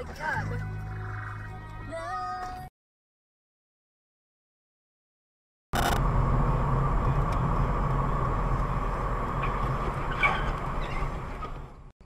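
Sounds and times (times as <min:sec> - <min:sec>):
car engine and road noise: 0:05.8 - 0:12.0.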